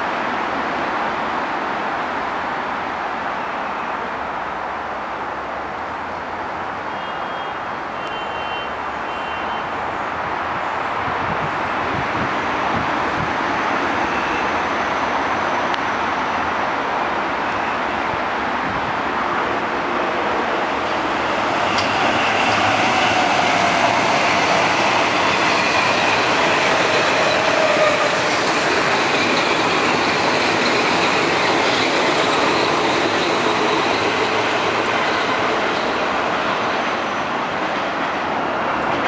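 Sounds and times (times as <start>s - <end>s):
train wheels rushing on rail: 8.3s - 39.0s.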